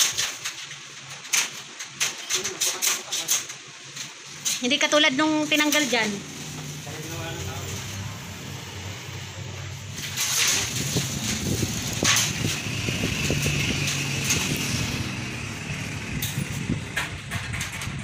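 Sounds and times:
vehicle engine rumbling: 4.7 - 18.0.

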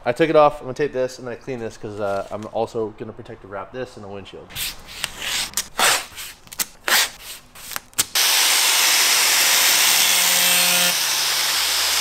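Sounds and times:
handheld blower hissing: 8.2 - 12.0.

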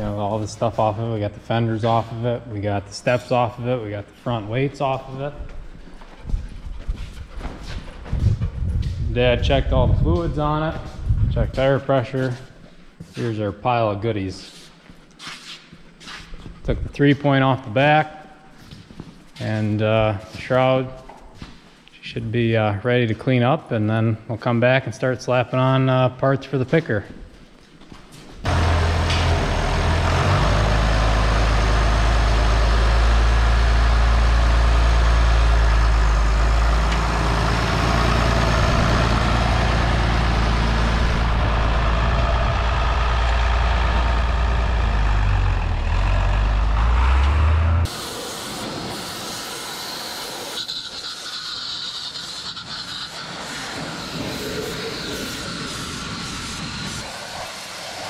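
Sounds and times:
tractor engine running: 28.5 - 49.7
pressure washer jet hissing: 47.9 - 58.0.

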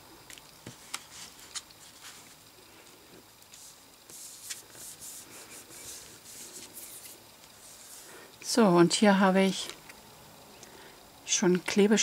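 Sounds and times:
hands and cards rustling on table: 0.3 - 2.4, 3.4 - 8.2.

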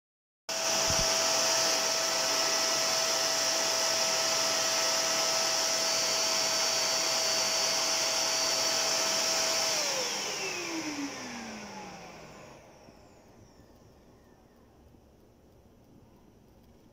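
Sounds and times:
vacuum cleaner running: 0.5 - 13.7
vacuum motor winding down: 0.5 - 14.6.

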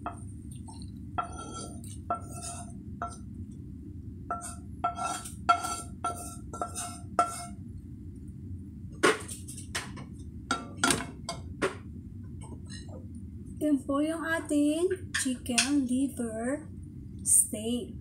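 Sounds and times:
spatula scraping frying pan: 0.1 - 3.2, 4.3 - 7.6.

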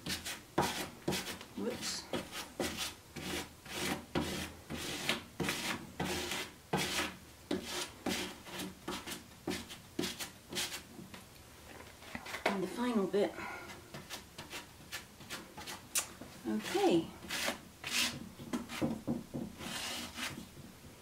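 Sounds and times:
plastic card scraping compound: 19.6 - 20.4.

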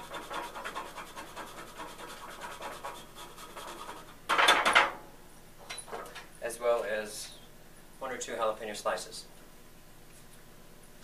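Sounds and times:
chili rasping on hand grater: 0.0 - 4.1.

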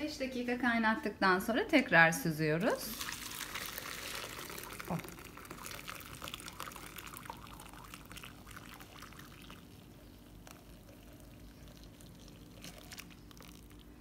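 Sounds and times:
liquid pouring through strainer: 2.9 - 14.0.

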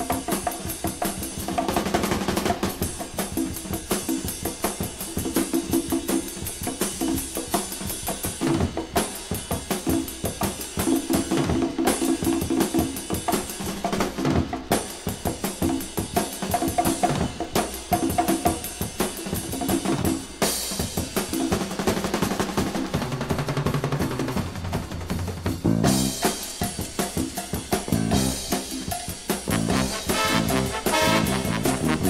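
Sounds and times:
drum kit playing: 0.0 - 32.0
band music from a record: 25.5 - 32.0.

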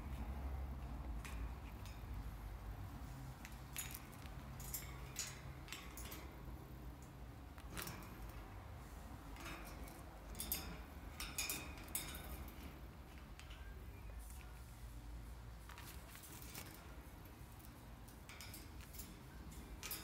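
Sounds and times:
bird clicking on metal bars: 3.3 - 8.5, 9.3 - 13.7, 15.7 - 20.0.

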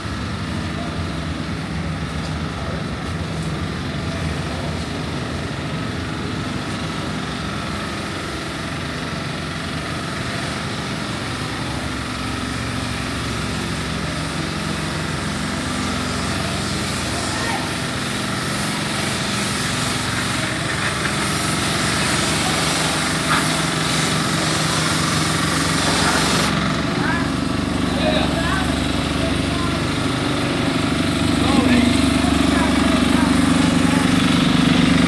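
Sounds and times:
engine running steadily: 0.0 - 35.0.

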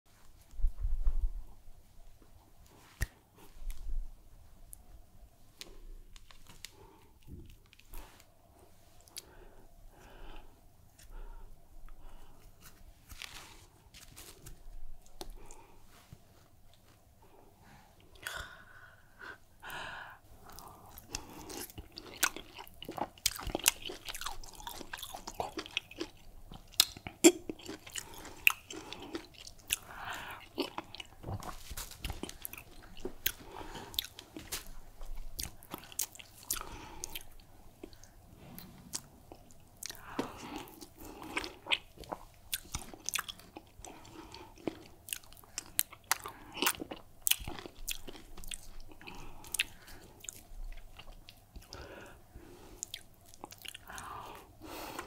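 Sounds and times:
close-miked chewing: 20.4 - 52.1, 52.7 - 55.0.

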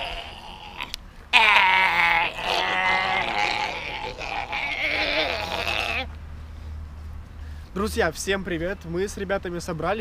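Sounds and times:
high bleat-like cry: 0.0 - 6.1.

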